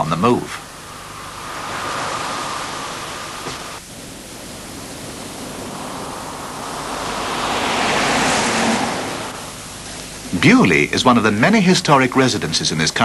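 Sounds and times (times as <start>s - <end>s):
steady rushing noise: 0.0s - 11.7s.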